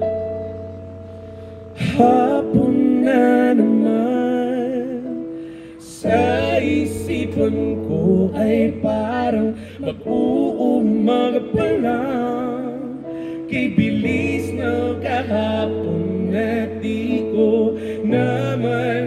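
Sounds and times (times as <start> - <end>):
electronic keyboard: 0.0 - 19.0
man singing: 1.8 - 19.0.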